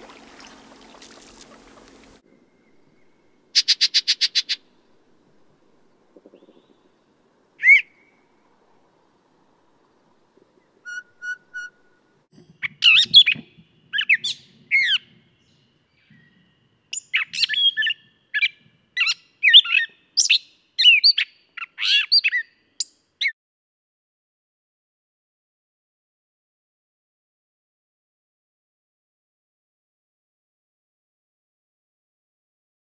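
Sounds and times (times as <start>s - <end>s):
catbird song: 0.4s - 4.8s, 6.0s - 7.0s, 7.6s - 8.3s, 10.6s - 23.3s.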